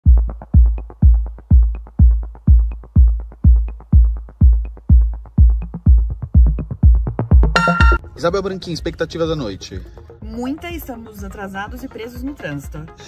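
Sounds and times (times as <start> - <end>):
heavy kick drum: 0.0 - 8.0
electronic dance music: 7.5 - 8.0.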